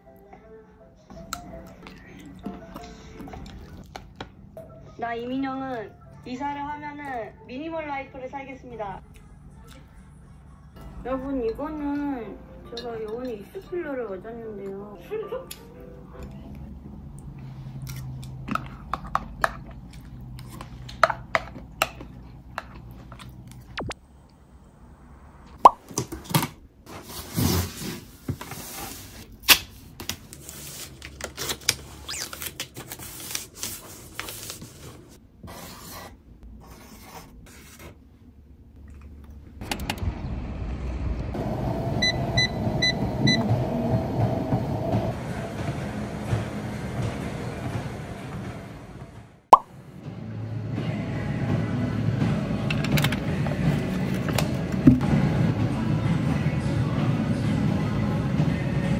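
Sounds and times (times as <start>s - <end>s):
treadmill motor and belt running: 41.4s - 49.4s
treadmill console beeps: 42.0s - 43.5s.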